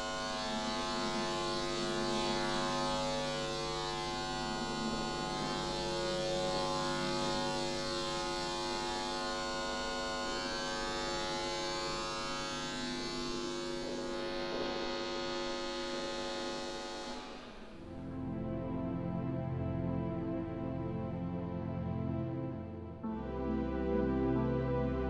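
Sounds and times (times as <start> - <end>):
electrical hum and buzz: 0.0 - 18.5.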